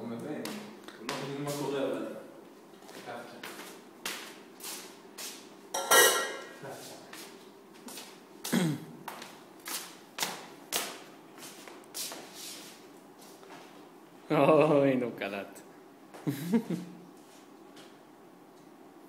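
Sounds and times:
footsteps on tiled floor: 2.8s - 5.5s, 6.6s - 13.8s.

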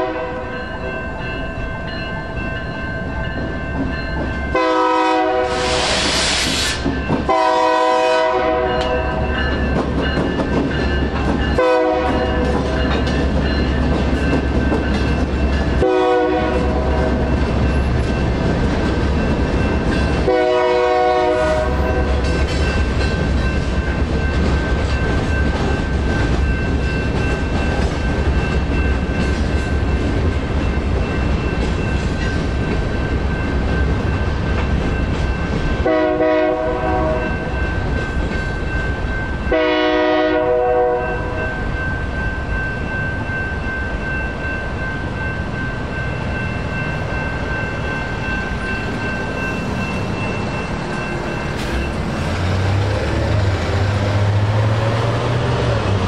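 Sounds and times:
train horn blasts: 0.0s - 0.5s, 4.5s - 6.2s, 7.3s - 9.3s, 11.6s - 12.4s, 15.8s - 17.2s, 20.2s - 22.2s, 35.8s - 37.4s, 39.5s - 41.4s
crossing signal bell ringing: 0.0s - 5.4s, 6.8s - 56.0s
freight train rumbling past: 0.0s - 56.0s.

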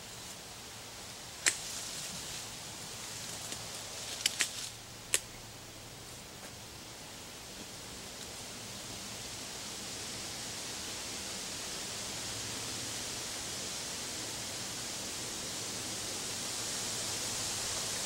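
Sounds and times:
leafy branches rustling: 1.3s - 5.1s.

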